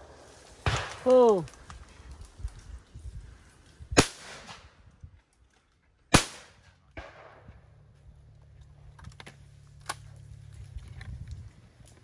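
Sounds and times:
shotgun shots: 0.6 - 1.0, 4.0 - 4.7, 6.1 - 7.5.

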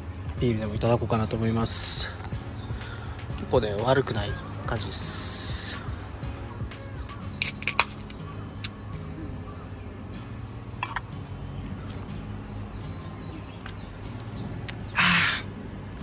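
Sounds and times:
background music low notes: 0.0 - 16.0
sharp clicks: 7.4 - 8.8.

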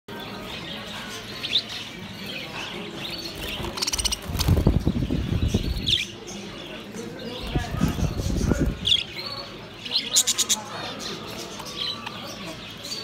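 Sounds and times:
budgerigars chirping and chattering: 0.1 - 13.0
budgie wings flapping: 3.4 - 5.7.

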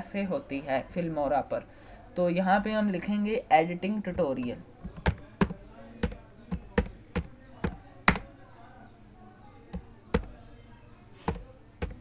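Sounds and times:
keyboard keystrokes: 4.8 - 8.3, 9.8 - 10.3, 11.3 - 12.0.

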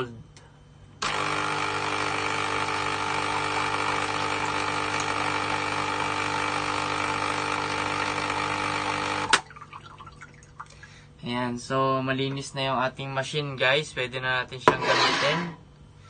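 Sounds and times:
coffee machine pump humming: 1.0 - 13.2.

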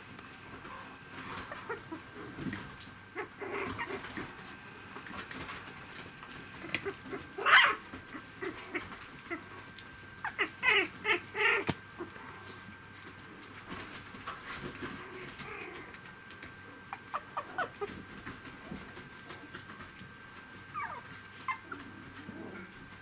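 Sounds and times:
scuffling clicks: 3.6 - 7.3
puppy squeal: 7.4 - 7.8
puppy yips: 7.4 - 7.8
puppies squeaking: 10.2 - 11.7, 16.9 - 17.9, 20.8 - 21.8.

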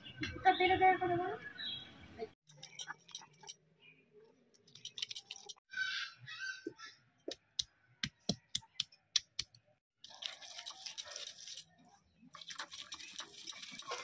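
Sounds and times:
stone-on-stone clicks and taps: 7.3 - 9.6.

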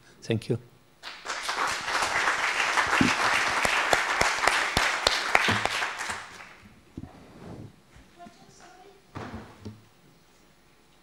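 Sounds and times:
audience applauding: 1.0 - 6.6.

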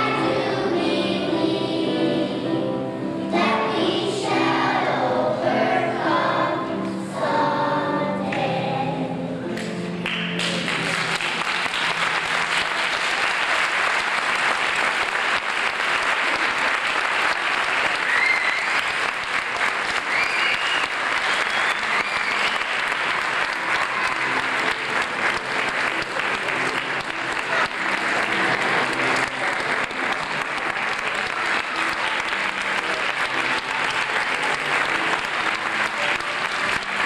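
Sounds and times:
audience applauding: 10.0 - 37.0
high cheers: 15.9 - 37.0.

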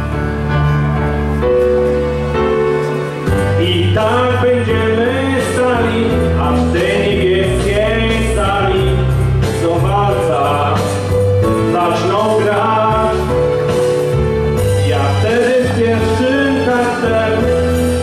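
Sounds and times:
instrumental accompaniment: 0.0 - 18.0
man singing into a microphone: 3.5 - 13.6, 14.8 - 18.0.

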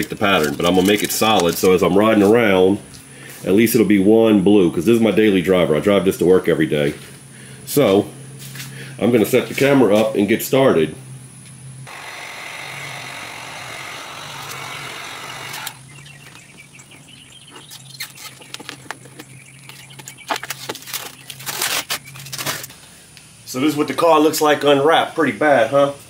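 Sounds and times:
vinyl wrap peeling crackles: 0.0 - 2.3, 19.8 - 22.8.

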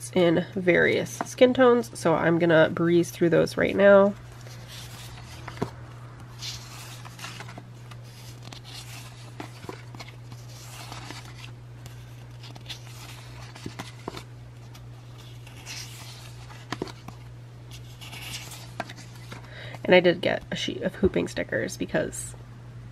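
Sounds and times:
paper sheets swishing and rustling: 3.6 - 19.4.

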